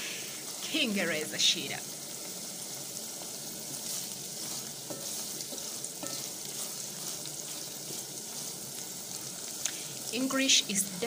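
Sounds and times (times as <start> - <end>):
fish sizzling in hot oil: 0.0 - 11.0
wooden spoon scraping pot: 3.7 - 9.3.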